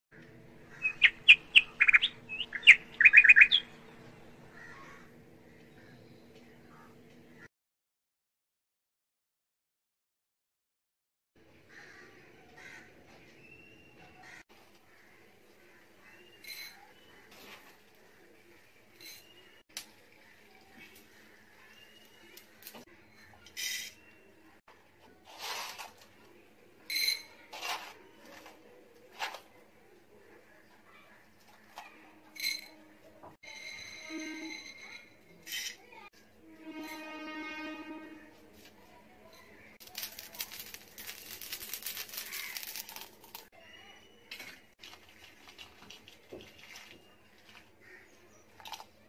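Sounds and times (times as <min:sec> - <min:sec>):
peppercorns clinking in metal pan: 0:39.8 - 0:43.5.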